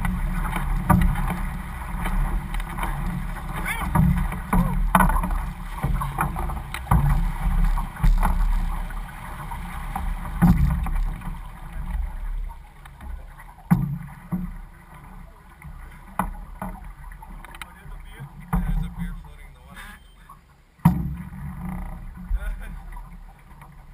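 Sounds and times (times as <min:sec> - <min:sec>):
wind rumble on microphone: 0:00.0 - 0:12.5
sharp knocks and splashes: 0:00.0 - 0:19.4, 0:20.8 - 0:23.9
water lapping against hull: 0:00.0 - 0:23.9.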